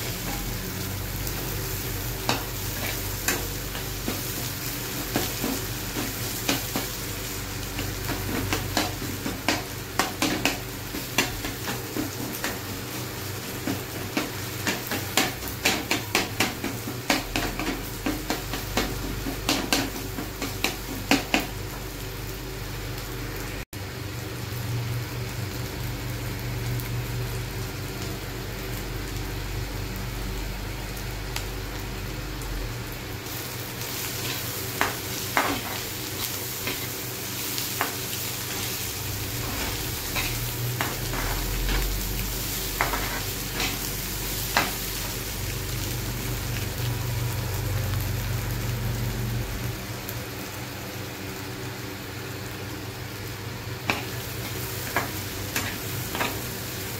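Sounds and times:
eggs sizzling in a frying pan: 0.0 - 56.9.

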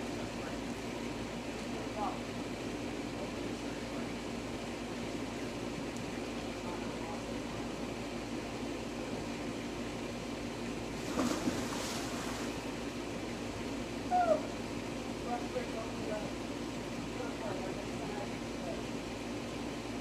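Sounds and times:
person splashing into pool: 11.0 - 12.5.

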